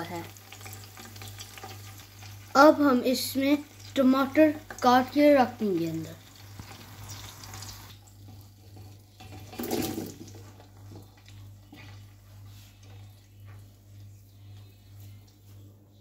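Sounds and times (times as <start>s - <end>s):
tomatoes sizzling in hot oil: 0.0s - 14.0s
low steady hum: 3.3s - 16.0s.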